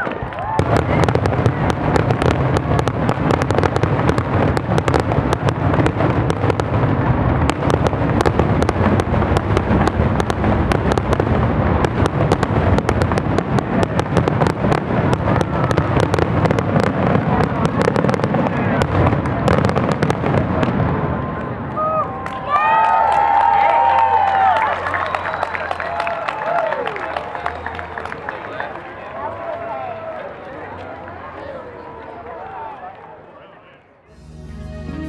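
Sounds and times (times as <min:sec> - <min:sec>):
fireworks bursting and crackling: 0:00.0 - 0:21.8.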